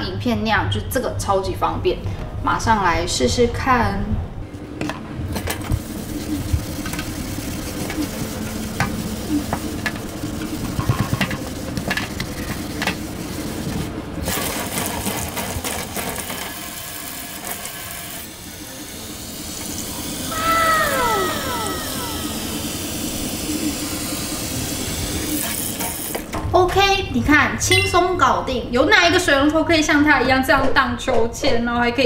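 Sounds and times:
tap water running into sink: 5.4s - 20.2s
falling whistle-like tones: 20.3s - 23.2s.

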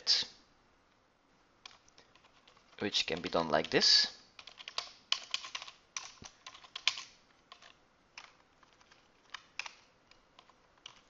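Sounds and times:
typing on computer keyboard: 1.6s - 3.8s, 4.4s - 11.0s.

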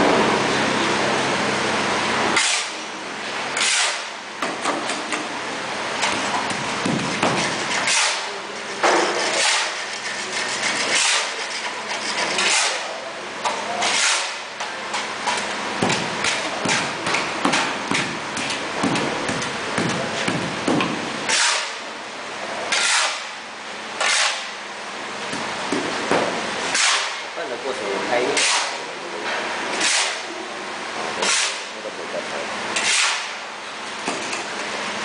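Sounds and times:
shovel digging dry powder: 2.4s - 2.8s, 3.6s - 4.1s, 7.5s - 8.4s, 9.0s - 13.0s, 13.8s - 14.4s, 21.3s - 21.8s, 22.7s - 23.2s, 26.8s - 27.1s, 32.8s - 33.3s
shovel scraping tiled floor: 2.4s - 2.8s, 3.6s - 4.1s, 7.1s - 13.0s, 13.8s - 14.4s, 21.3s - 21.8s, 22.7s - 23.3s, 24.0s - 24.5s, 26.7s - 27.2s, 28.3s - 28.8s, 29.8s - 30.3s, 31.2s - 31.6s, 32.8s - 33.3s.

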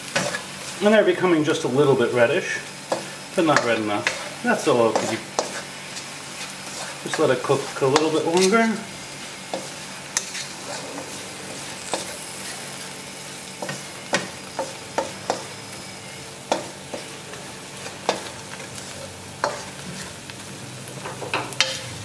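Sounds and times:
berries sizzling in a pan: 0.0s - 22.0s
wooden spoon stirring: 2.9s - 12.9s.

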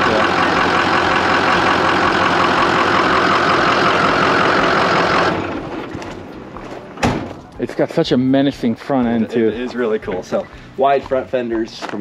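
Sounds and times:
diesel engine idling: 0.0s - 6.9s.

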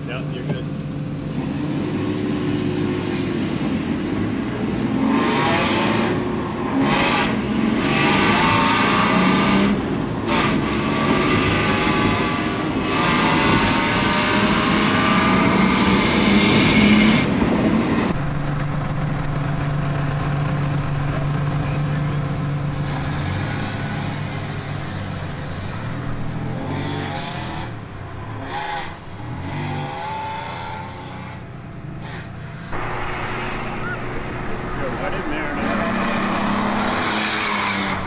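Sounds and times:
truck engine accelerating through gears: 0.0s - 38.0s
engine idling: 18.2s - 23.3s.

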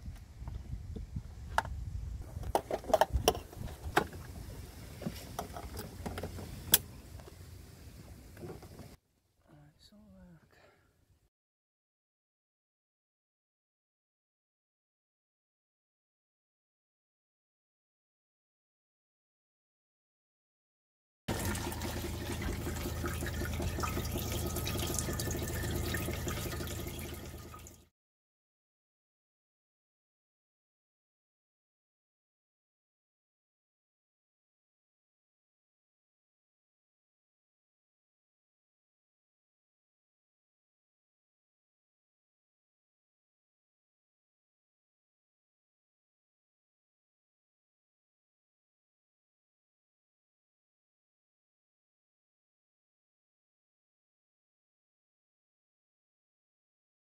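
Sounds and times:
plastic fittings clicking and knocking: 2.4s - 4.2s
faucet water splashing into sink: 21.3s - 27.8s
low hum: 21.3s - 27.8s.

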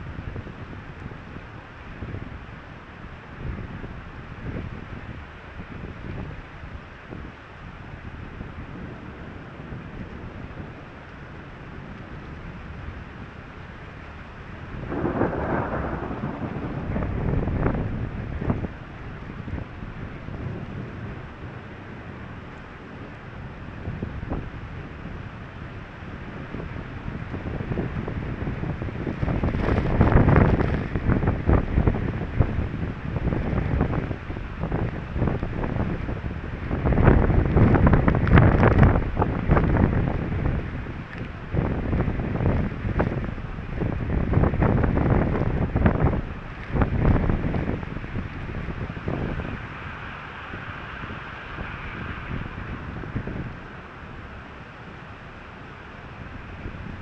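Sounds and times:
rain on a car: 0.0s - 57.0s
storm wind gusting on microphone: 0.0s - 57.0s
thunder rumbling: 8.4s - 55.0s
sharp thunder cracks: 14.8s - 19.8s.

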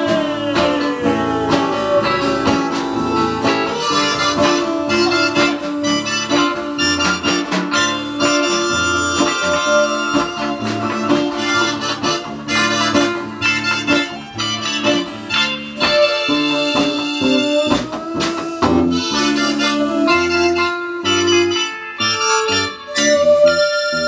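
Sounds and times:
strummed acoustic guitar: 0.0s - 22.9s
bass guitar: 0.0s - 24.0s
harmonica melody: 0.0s - 24.0s.

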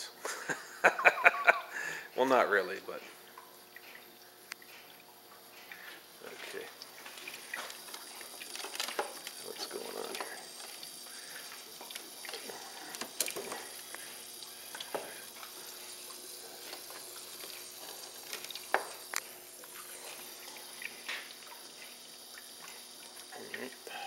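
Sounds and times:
electrolysis cell fizzing and hissing: 0.2s - 24.0s.

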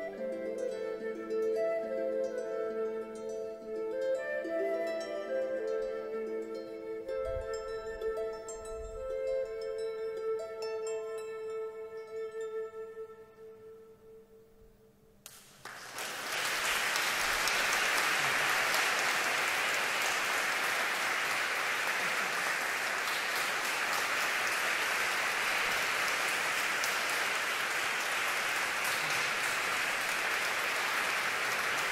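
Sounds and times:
audience applauding: 15.3s - 31.9s.

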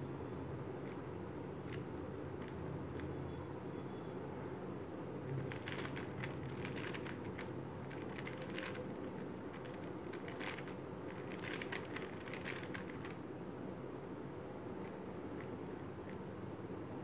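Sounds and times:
plastic cube layers clicking: 5.4s - 13.2s.

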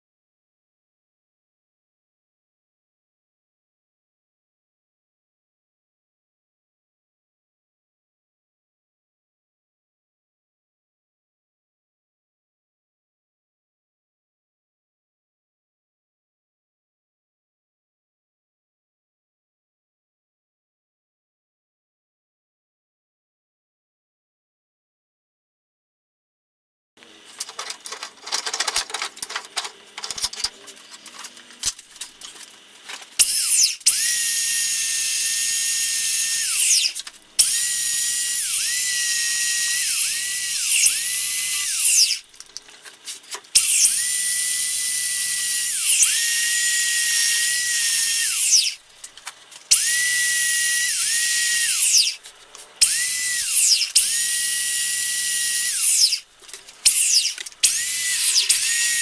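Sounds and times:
handling knocks and clicks: 27.3s - 33.1s.

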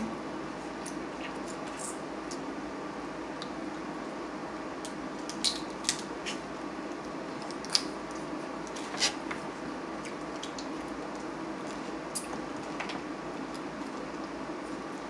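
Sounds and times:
steady background hum: 0.0s - 15.0s
crab shell cracking: 4.8s - 6.1s, 7.4s - 8.8s.

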